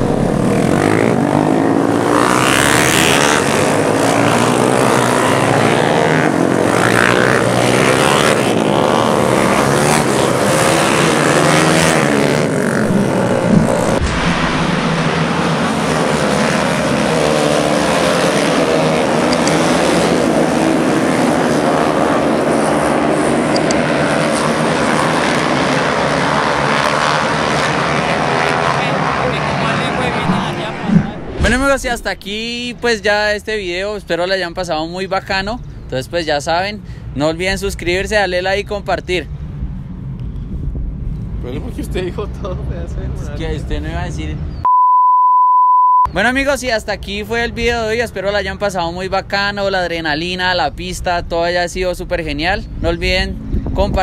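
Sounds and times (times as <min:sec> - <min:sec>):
motorcycle engines revving and passing: 0:00.0 - 0:44.6, 0:46.2 - 0:54.0.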